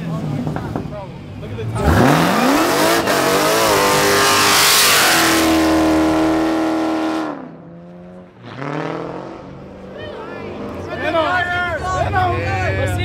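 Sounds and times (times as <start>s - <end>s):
car engine revving hard: 1.6s - 7.6s, 8.4s - 9.7s.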